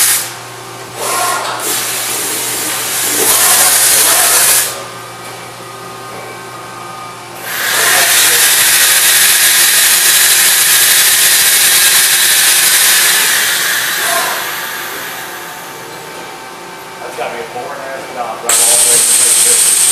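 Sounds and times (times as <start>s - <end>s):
machine low hum: 0.2s - 7.6s, 13.2s - 19.9s
loud even hiss: 7.4s - 15.6s, 18.5s - 19.9s.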